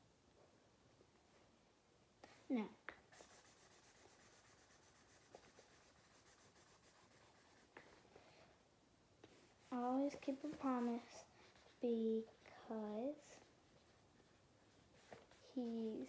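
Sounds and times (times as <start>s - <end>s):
pen scratching on paper: 3.1s - 8.0s, 9.2s - 12.5s, 13.6s - 15.8s.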